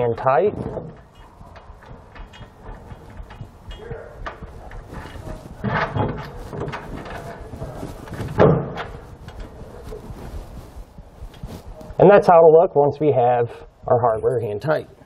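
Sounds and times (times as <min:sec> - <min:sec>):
metal knocks: 0:00.0 - 0:07.5, 0:08.1 - 0:09.6.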